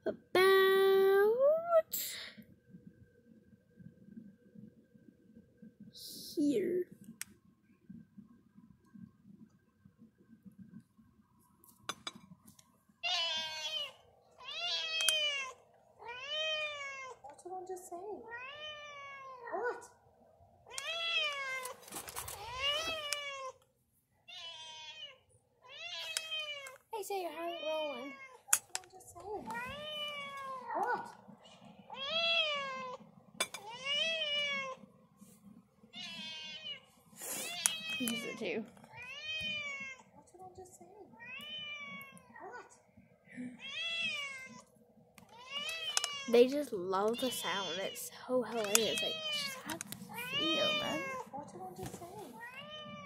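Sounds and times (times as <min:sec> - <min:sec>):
cat meowing: 0:13.0 - 0:17.2, 0:18.3 - 0:19.8, 0:20.7 - 0:21.8, 0:24.3 - 0:26.8, 0:29.5 - 0:31.1, 0:35.9 - 0:36.8, 0:37.5 - 0:40.1, 0:41.2 - 0:42.7, 0:43.6 - 0:44.7, 0:48.6 - 0:51.3, 0:52.4 - 0:53.0
cat meowing from phone speaker: 0:48.6 - 0:51.2.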